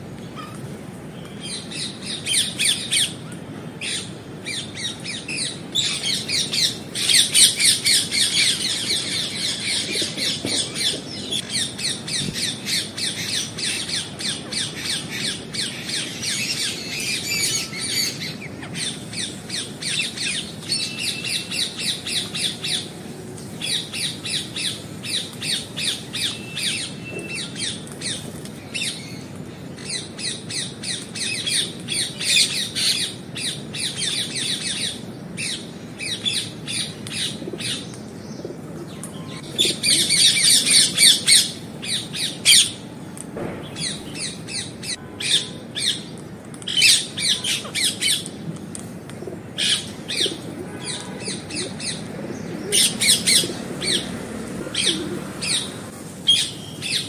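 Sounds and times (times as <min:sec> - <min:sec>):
parakeets squawking: 0:49.6 - 0:57.0.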